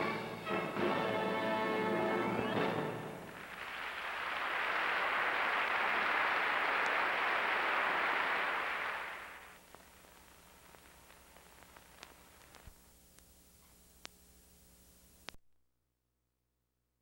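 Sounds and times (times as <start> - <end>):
steady hiss: 3.1 - 15.3
faint clicks: 9.6 - 14.2.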